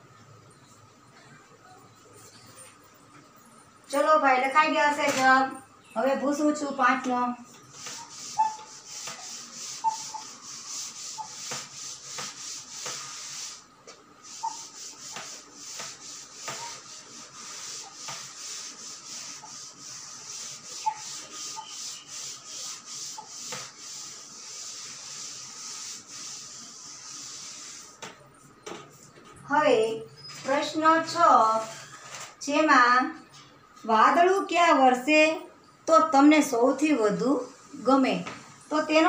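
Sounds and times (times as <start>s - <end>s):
cloth rubbing chalkboard: 7.6s - 28.2s, 30.4s - 32.1s.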